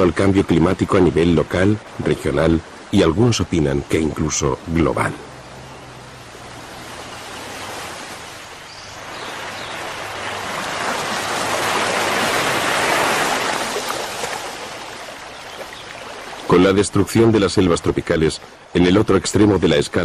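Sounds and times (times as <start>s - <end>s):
floodwater rushing and splashing: 0.0s - 20.0s.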